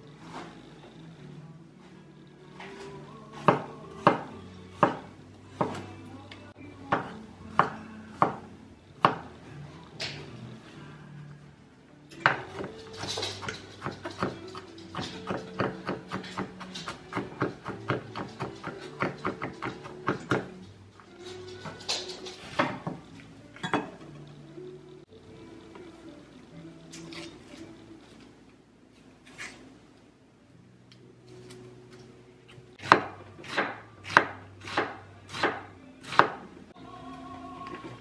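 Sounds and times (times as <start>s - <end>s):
background music: 0.0s - 38.0s
knife chopping on cutting board: 3.4s - 5.0s, 32.8s - 36.4s.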